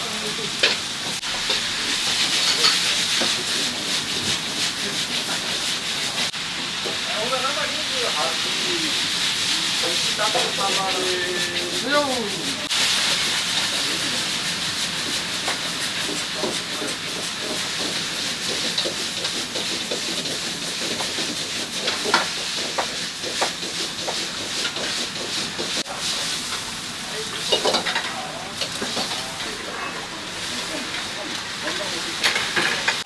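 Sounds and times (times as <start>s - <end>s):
steady cooking hiss: 0.0s - 33.0s
metal utensils and pans clinking: 0.6s - 4.4s, 27.3s - 30.2s, 32.2s - 33.0s.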